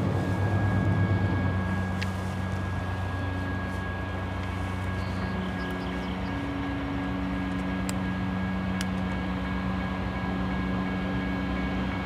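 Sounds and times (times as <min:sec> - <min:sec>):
diesel locomotive droning: 0:00.0 - 0:12.0.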